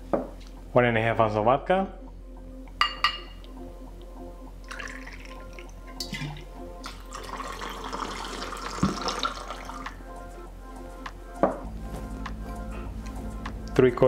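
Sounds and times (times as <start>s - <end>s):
glass clinks: 2.8s - 3.4s
liquid trickling into glass: 4.6s - 10.0s.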